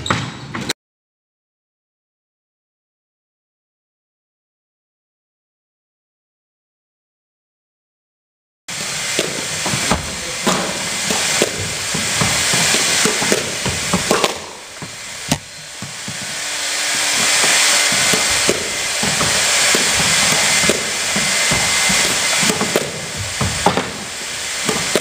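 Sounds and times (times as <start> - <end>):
steady hiss: 8.7 - 25.0
squash ball knocks: 9.2 - 16.3, 17.4 - 25.0.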